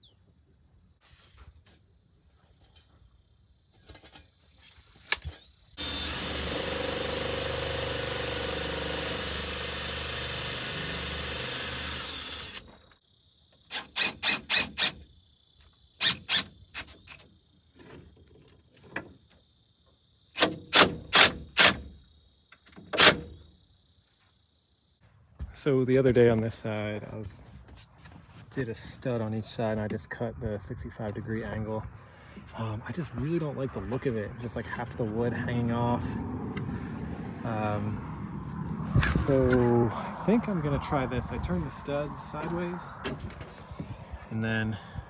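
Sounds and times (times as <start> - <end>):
cordless drill driving screws: 5.1 - 12.7.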